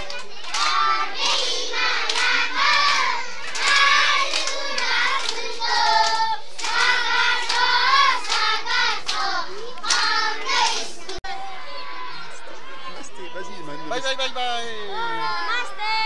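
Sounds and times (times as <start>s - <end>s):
hands clapping: 0.0s - 11.2s
children singing in chorus: 0.0s - 12.2s.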